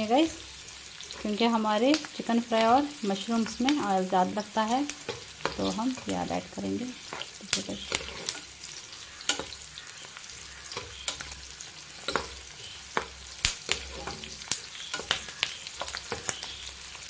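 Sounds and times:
onions sizzling in oil: 0.0 - 17.0
spatula scraping pan: 5.0 - 17.0.

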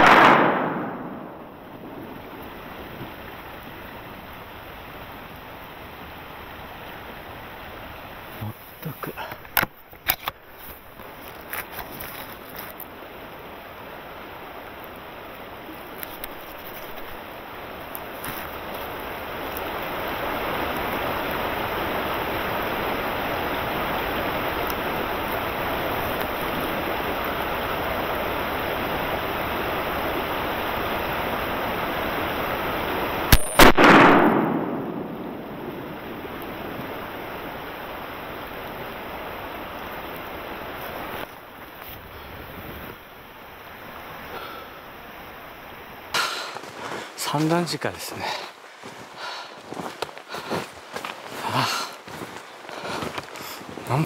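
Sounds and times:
shotgun shot: 0.0 - 1.6, 33.3 - 35.9
steady rushing noise: 0.0 - 5.3, 16.3 - 44.3.

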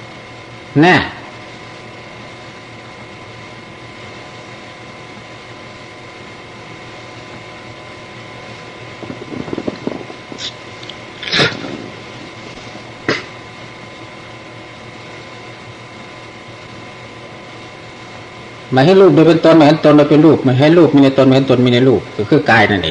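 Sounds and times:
faint electrical hum: 0.0 - 22.9
steady hiss: 8.1 - 22.6.

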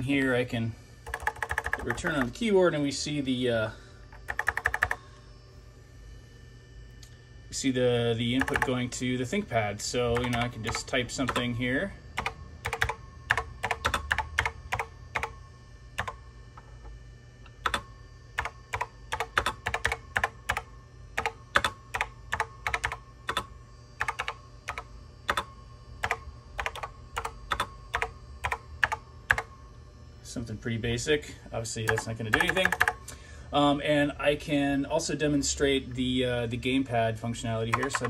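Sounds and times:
fan whine: 0.0 - 38.0.

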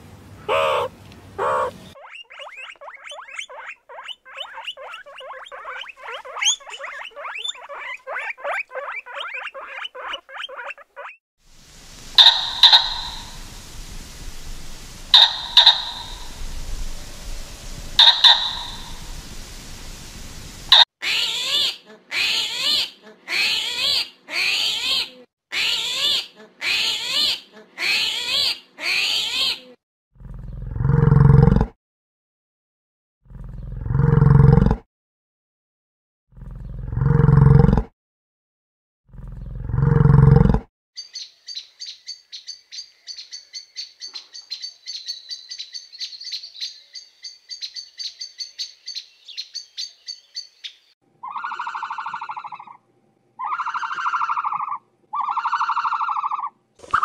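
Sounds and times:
small animal squeaking: 0.5 - 11.2, 12.2 - 13.3, 15.1 - 16.4, 18.0 - 19.0, 51.2 - 52.8, 53.4 - 57.0.

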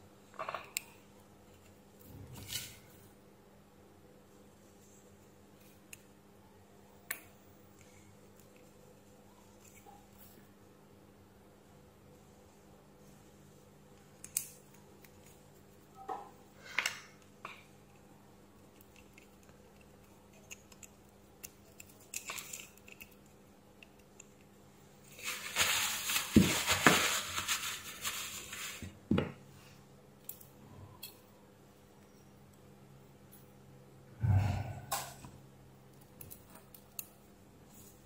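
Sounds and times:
scraping and rustling: 25.1 - 29.0.

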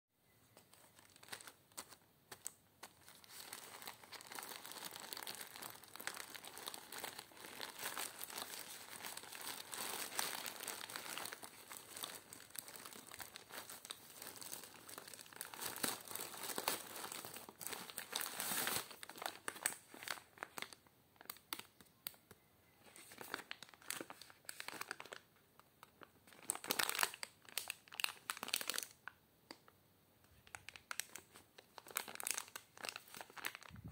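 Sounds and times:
plastic bag crinkling: 0.5 - 21.4, 23.0 - 29.0, 30.4 - 33.9
plastic tearing: 0.7 - 21.7.

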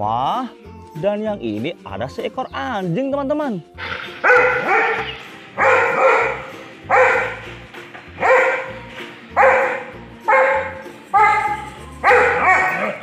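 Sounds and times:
background music with low beat: 0.0 - 13.0
dog barking: 4.0 - 7.5, 8.2 - 8.8, 9.4 - 13.0.

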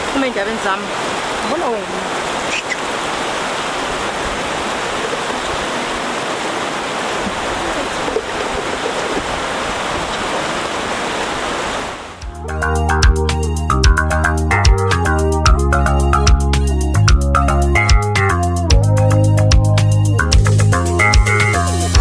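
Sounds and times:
flowing water rushing: 0.0 - 12.5
music with a beat: 12.2 - 22.0.

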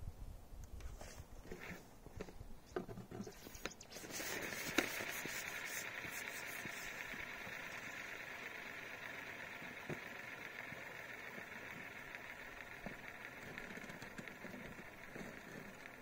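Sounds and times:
steady hiss: 3.3 - 16.0.

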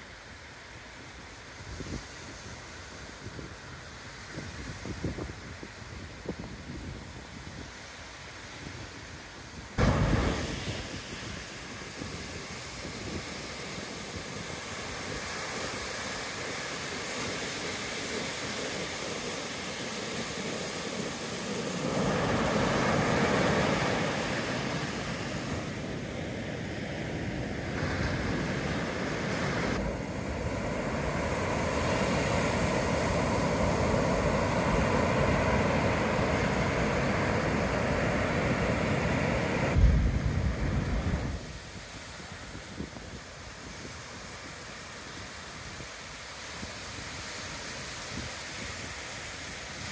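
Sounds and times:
wind buffeting microphone: 4.3 - 7.8, 9.6 - 47.2
ocean surf breaking: 9.7 - 49.9.

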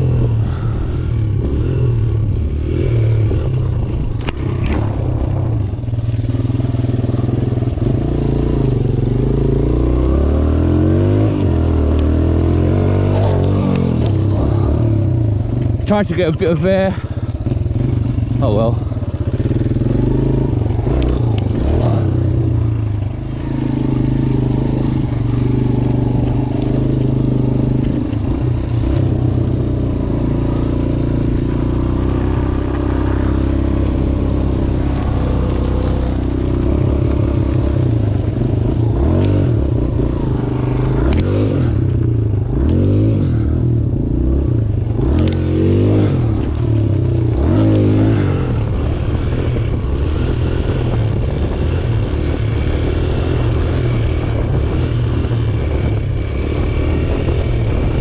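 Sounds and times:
dirt bike engine revving: 0.0 - 58.0
sharp clicks: 41.0 - 41.4, 45.1 - 45.4.

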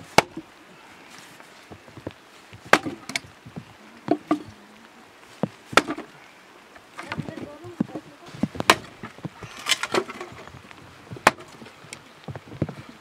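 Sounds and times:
blade chopping wood: 0.1 - 0.4, 2.7 - 3.2, 5.7 - 6.1, 8.6 - 9.0, 11.2 - 11.6.

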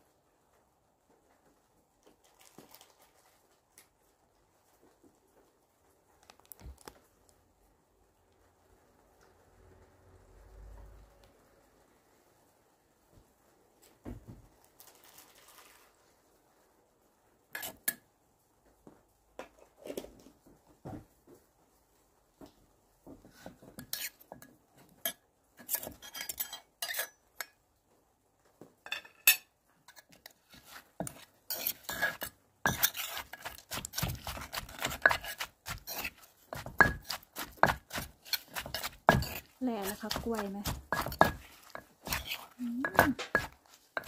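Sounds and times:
pestle pounding in mortar: 31.0 - 44.0.

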